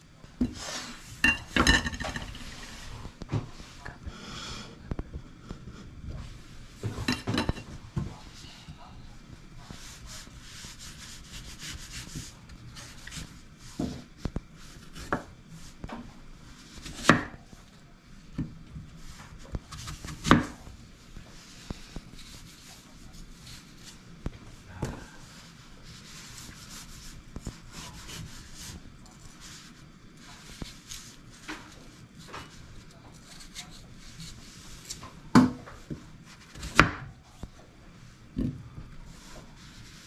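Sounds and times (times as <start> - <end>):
knife scraping through apple: 9.7 - 14.0, 25.8 - 35.0.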